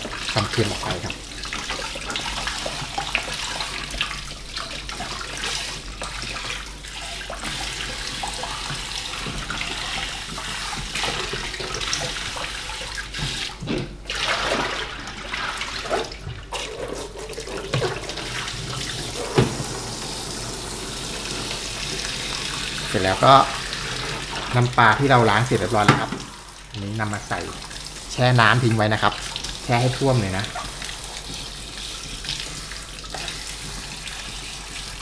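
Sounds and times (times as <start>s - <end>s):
tap running into basin of water: 0.0s - 35.0s
water splashing: 0.0s - 35.0s.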